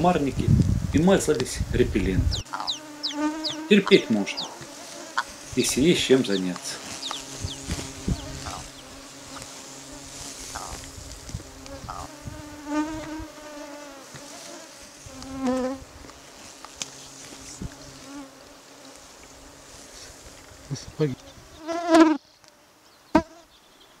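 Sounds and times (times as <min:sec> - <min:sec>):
insects buzzing: 0:00.0 - 0:24.0
ptarmigan calls: 0:02.3 - 0:09.0, 0:10.5 - 0:10.9.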